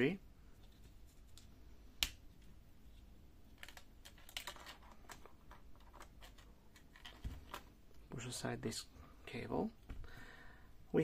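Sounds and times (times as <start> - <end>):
hands handling plastic parts: 0.6 - 7.8.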